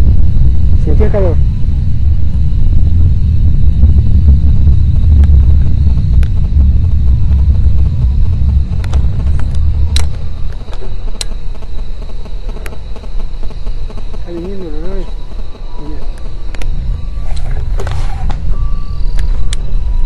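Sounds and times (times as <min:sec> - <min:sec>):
deep continuous rumble: 0:00.0 - 0:20.0
sharp clicks: 0:08.8 - 0:11.4, 0:15.4 - 0:16.7.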